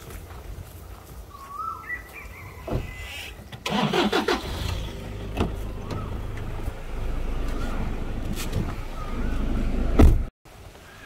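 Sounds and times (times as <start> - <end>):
truck engine cranking and idling: 3.6 - 10.3
bird chirping: 5.4 - 9.9.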